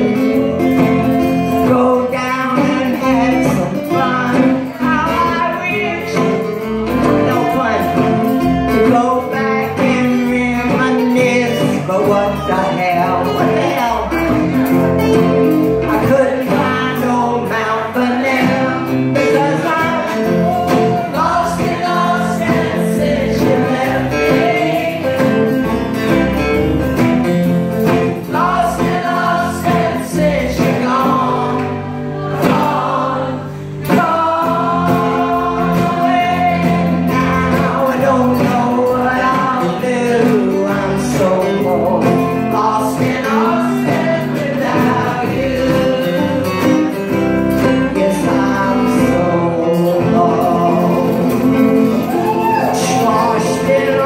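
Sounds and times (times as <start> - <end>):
group singing in chorus: 0.0 - 4.8, 16.0 - 26.2, 27.8 - 46.7
acoustic guitars: 0.0 - 54.0.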